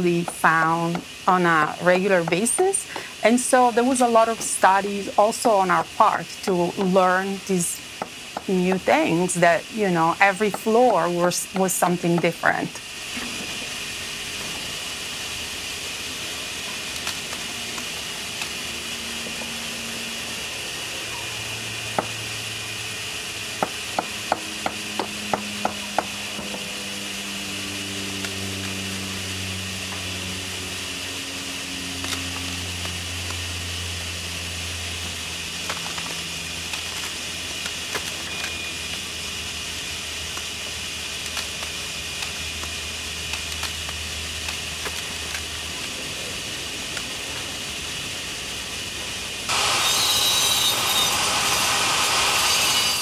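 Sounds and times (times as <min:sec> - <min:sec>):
low hum: 0:17.5 - 0:39.6.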